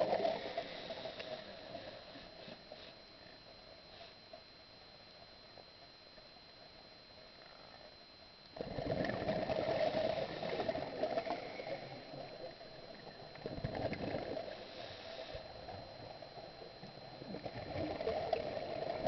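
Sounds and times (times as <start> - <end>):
faint steady high tone: 0.0 - 19.0
diver's bubbles gurgling underwater: 8.6 - 11.5, 13.2 - 14.4.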